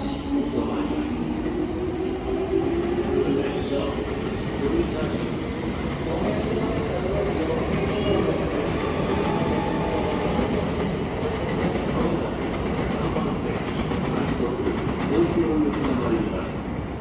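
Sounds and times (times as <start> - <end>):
electric train pulling out: 0.0 - 12.4.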